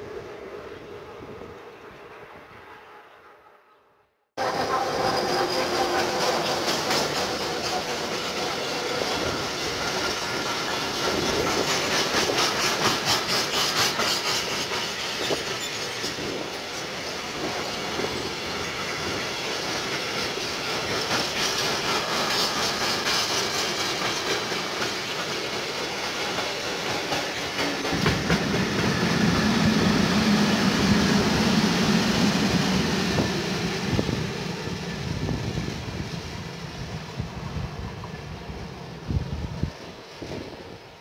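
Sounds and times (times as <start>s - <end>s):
freight train rolling past: 0.0s - 41.0s
train wheels clicking over track: 4.4s - 37.2s.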